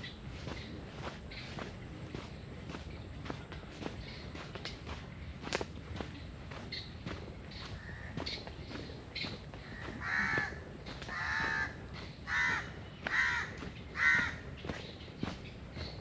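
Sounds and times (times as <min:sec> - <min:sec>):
footsteps on a path: 0:00.0 - 0:16.0
crow cawing: 0:07.7 - 0:08.4, 0:09.6 - 0:14.5.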